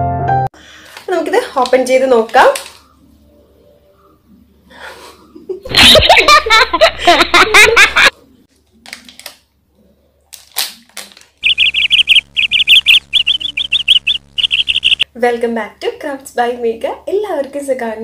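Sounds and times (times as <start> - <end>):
laughter sound effect: 5.4 - 8.1
foil packet crinkling: 10.3 - 11.5
cartoon bird tweets: 11.4 - 15.1.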